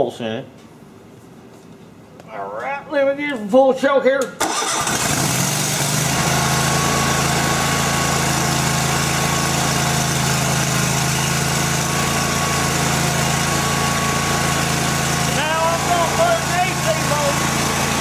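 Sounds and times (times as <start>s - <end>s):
mower engine running: 4.4s - 18.0s.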